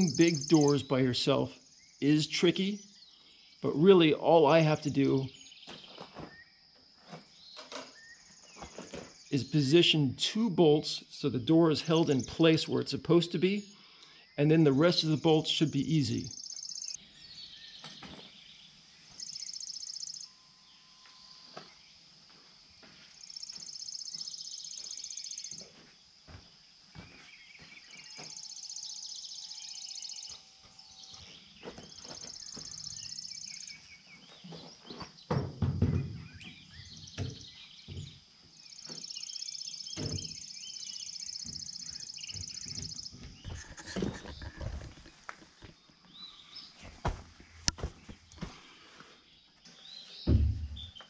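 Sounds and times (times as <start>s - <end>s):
insects buzzing: 0.0s - 10.0s, 10.6s - 51.0s
plywood door knocking and thumping: 35.3s - 38.2s, 50.2s - 51.0s.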